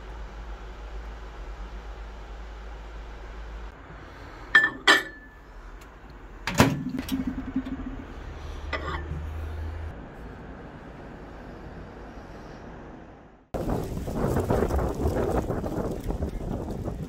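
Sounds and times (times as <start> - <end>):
microwave humming: 4.6 - 8.2.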